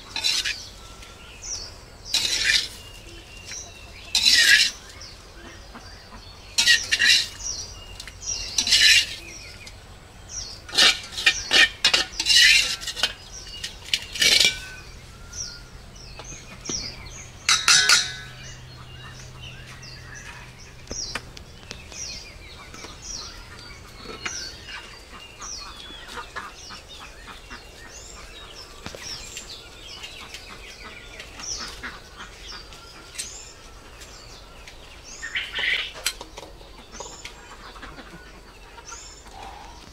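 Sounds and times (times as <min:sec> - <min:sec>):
metal spatula scraping wok: 0:00.0 - 0:00.7, 0:02.1 - 0:03.0, 0:04.1 - 0:04.8, 0:06.6 - 0:07.5, 0:08.5 - 0:09.4, 0:10.7 - 0:14.8, 0:17.5 - 0:18.6
birds chirping: 0:00.0 - 0:39.9.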